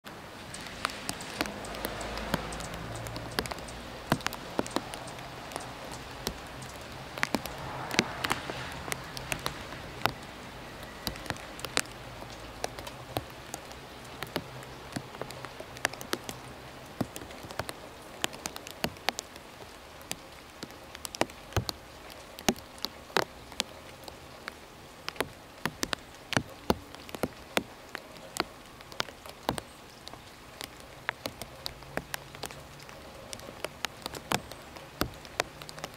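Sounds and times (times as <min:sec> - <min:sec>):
raindrops dripping on leaves: 0:00.0 - 0:35.9
steady hiss of rain: 0:00.0 - 0:35.9.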